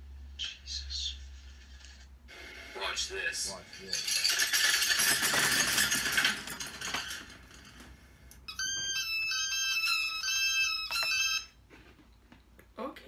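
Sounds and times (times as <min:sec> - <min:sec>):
dense rattling clatter: 0:03.9 - 0:07.8.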